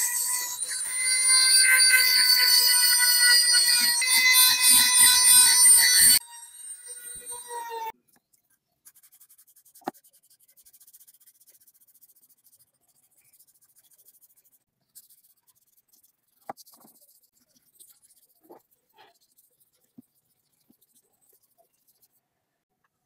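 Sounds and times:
rotary tool whine: 0:00.0 - 0:07.9.

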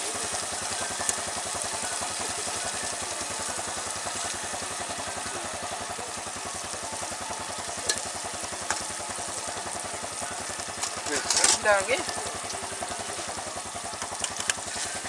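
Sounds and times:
gas stove low throb: 0:00.0 - 0:15.0
stew simmering and sizzling in a pot: 0:00.0 - 0:15.0.

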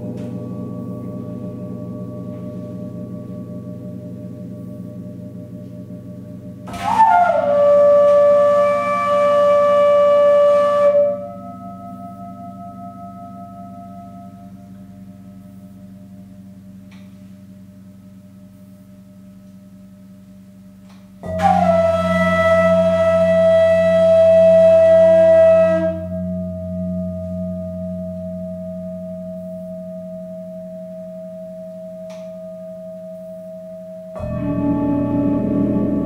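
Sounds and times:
gong struck: 0:00.0 - 0:36.0
singing bowls humming: 0:00.0 - 0:36.0
breathy flute note: 0:06.6 - 0:16.0, 0:21.2 - 0:28.3.

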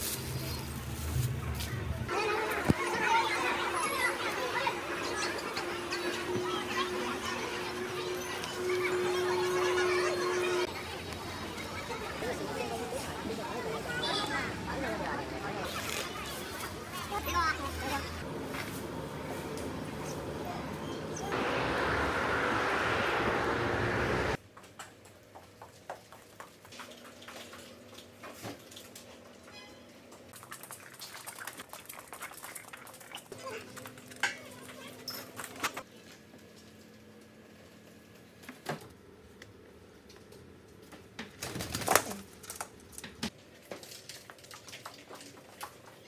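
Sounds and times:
bicycle road and wind noise: 0:19.7 - 0:24.4.

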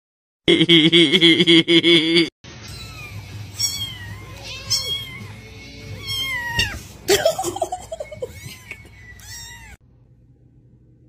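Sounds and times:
kitten mewing: 0:02.7 - 0:05.4, 0:06.0 - 0:06.9.

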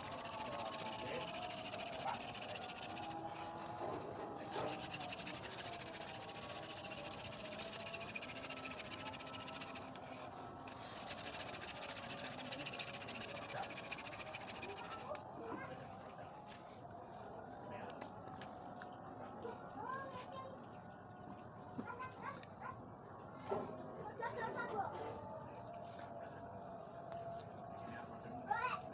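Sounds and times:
wood grinding on wood: 0:00.0 - 0:15.2.

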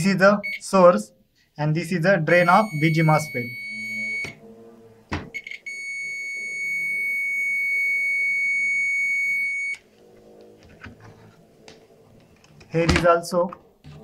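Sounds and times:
multimeter continuity chirp: 0:02.4 - 0:04.4, 0:05.4 - 0:09.8
steady high beep: 0:02.4 - 0:04.4, 0:05.4 - 0:09.8.

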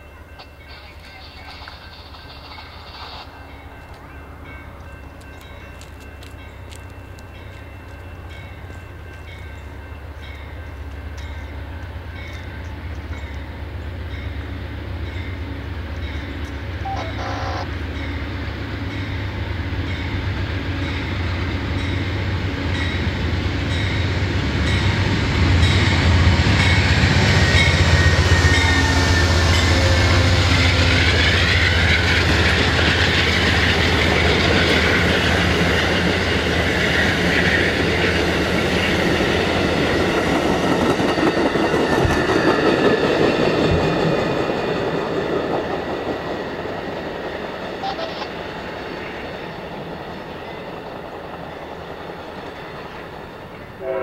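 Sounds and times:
train wheels clicking on rails: 0:00.0 - 0:13.6, 0:19.9 - 0:53.8
crossing bell dinging: 0:00.0 - 0:18.3, 0:18.9 - 0:38.2
diesel train passing: 0:00.0 - 0:54.0.

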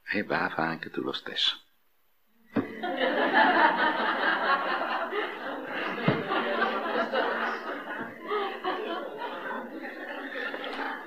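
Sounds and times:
audience laughing: 0:02.6 - 0:11.0.

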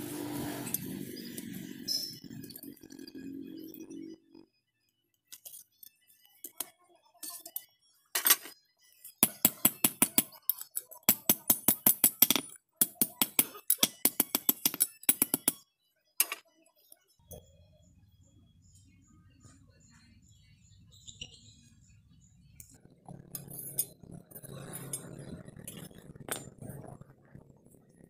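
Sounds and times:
hammer striking hot steel on anvil: 0:09.2 - 0:10.4, 0:11.1 - 0:15.6.

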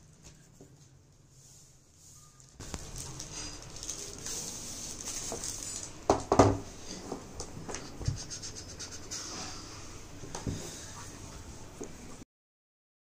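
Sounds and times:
plastic bag crinkling: 0:02.4 - 0:06.0.

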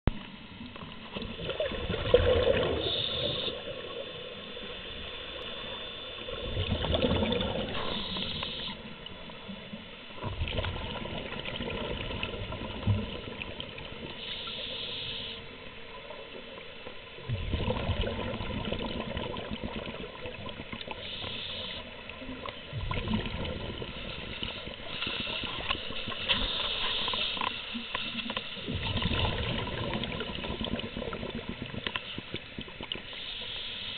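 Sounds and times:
underwater exhaled bubbles: 0:00.1 - 0:33.6.

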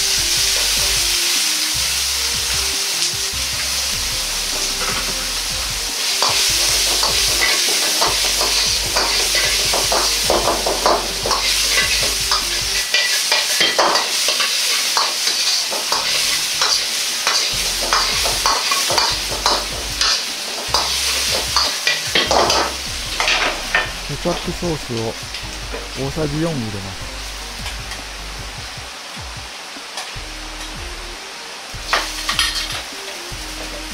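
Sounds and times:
sausage sizzling in oil: 0:00.0 - 0:33.9
metal ladle scraping a wok: 0:06.1 - 0:24.1, 0:31.9 - 0:32.8.

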